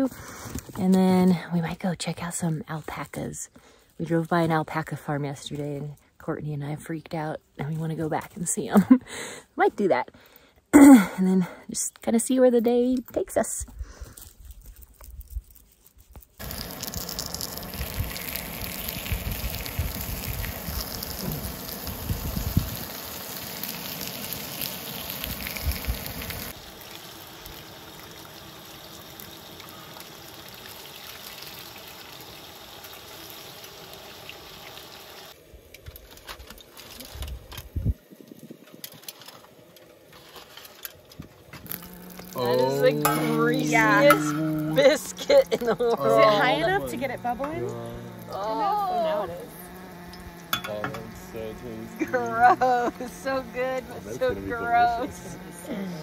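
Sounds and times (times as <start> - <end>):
dough sizzling in hot oil: 16.4 - 37.2, 41.7 - 45.3, 49.8 - 51.1.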